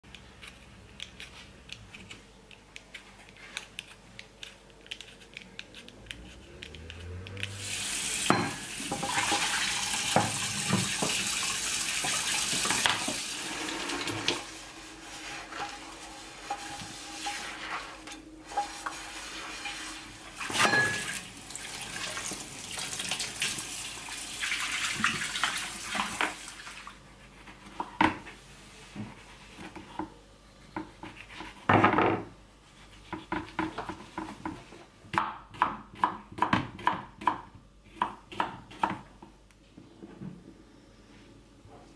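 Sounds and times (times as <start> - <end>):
sponge scrubbing a frying pan: 8.0 - 26.7
tap running into a sink: 8.2 - 13.3.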